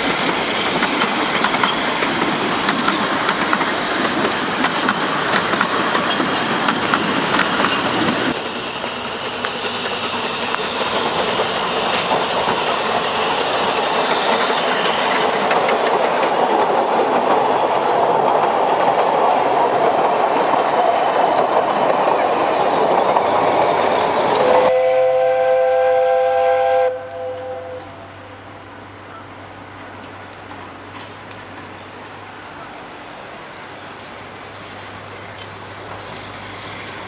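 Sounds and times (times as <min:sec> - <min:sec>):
train wheels clattering over rails: 0:00.0 - 0:24.7, 0:29.6 - 0:37.0
steam locomotive whistle: 0:24.4 - 0:28.2.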